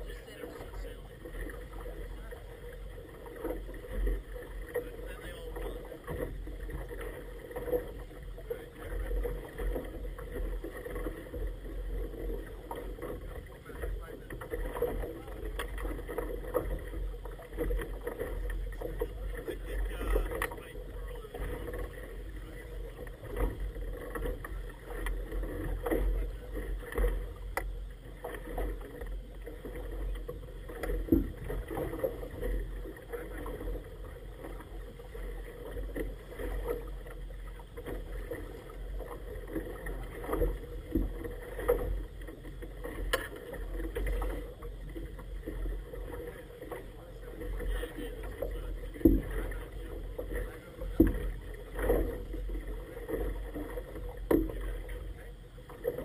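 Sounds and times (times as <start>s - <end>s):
boat rumble and wash: 0.0s - 56.0s
water slapping against hull: 0.0s - 56.0s.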